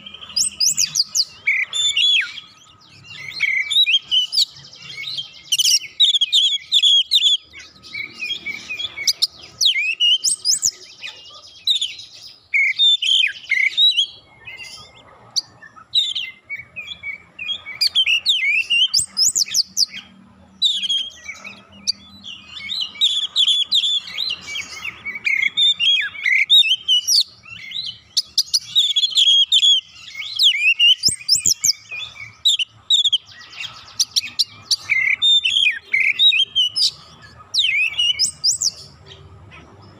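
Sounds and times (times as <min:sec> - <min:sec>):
songbird whistles and trills: 0:00.0 - 0:39.6.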